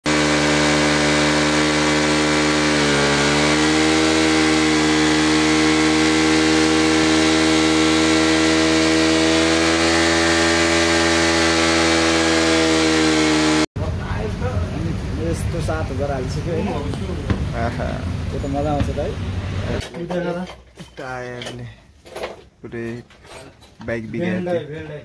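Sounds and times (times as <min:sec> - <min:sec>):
motorcycle engine at high revs: 0:00.0 - 0:13.7.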